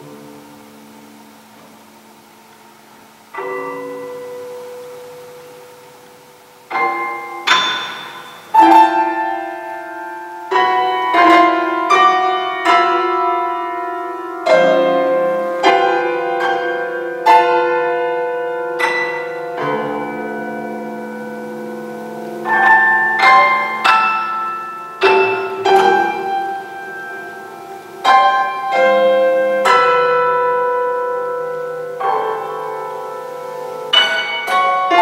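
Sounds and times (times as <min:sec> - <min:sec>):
prepared piano notes and chords: 0:00.0 - 0:35.0.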